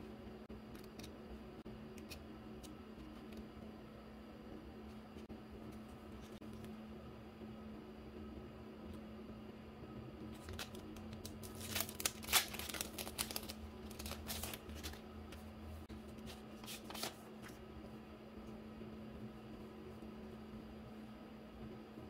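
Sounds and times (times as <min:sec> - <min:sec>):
faint steady hum: 0:00.0 - 0:22.0
plastic packaging crinkling: 0:10.4 - 0:15.0.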